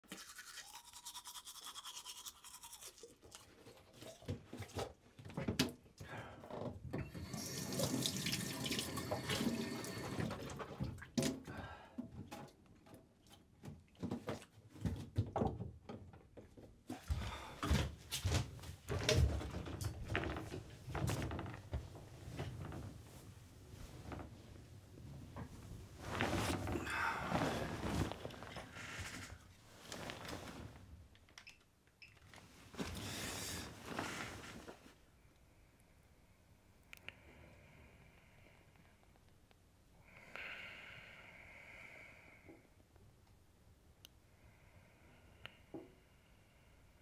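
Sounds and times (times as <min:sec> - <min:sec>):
tap water running: 0:07.0 - 0:11.0
bare feet climbing a ladder: 0:13.6 - 0:23.1.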